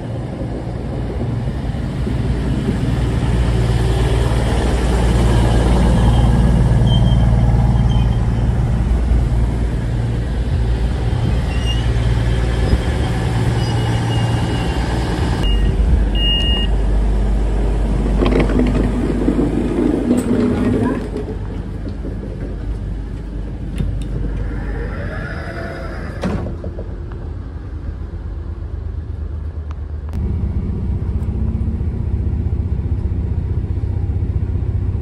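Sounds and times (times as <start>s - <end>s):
train diesel engines droning: 0.0s - 35.0s
train door clatter: 26.2s - 27.6s.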